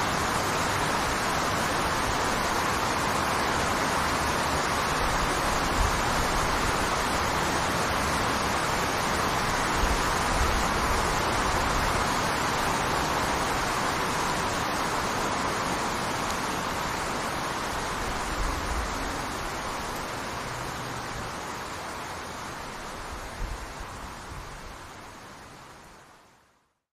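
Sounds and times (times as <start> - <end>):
waterfall rushing: 0.0 - 26.4.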